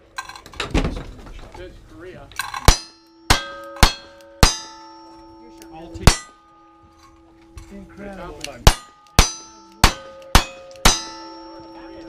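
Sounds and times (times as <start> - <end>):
steel target ringing clang: 2.4 - 7.6, 8.6 - 12.0.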